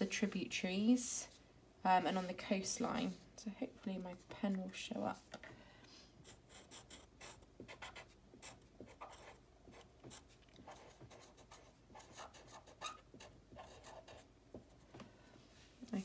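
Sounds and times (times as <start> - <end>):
pen scratching on paper: 6.2 - 14.8.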